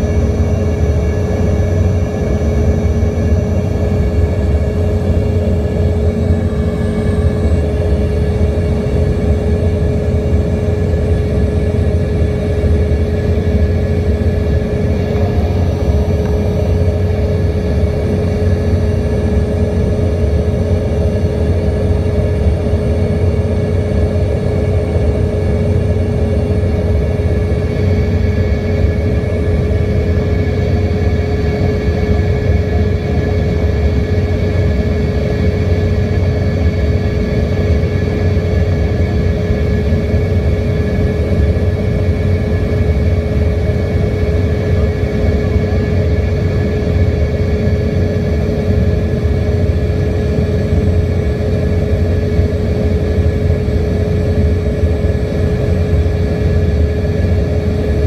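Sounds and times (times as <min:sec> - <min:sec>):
airflow rumble in jet cabin: 0:00.0 - 0:58.0
jet engine whine: 0:00.0 - 0:58.0.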